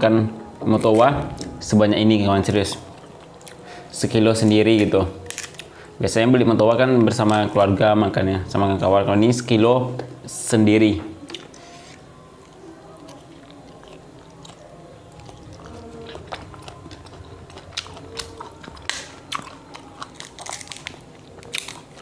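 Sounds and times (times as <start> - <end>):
chewing fruit: 2.4 - 3.7, 11.2 - 22.0
fruit skins cracking open: 5.2 - 5.8, 12.5 - 22.0.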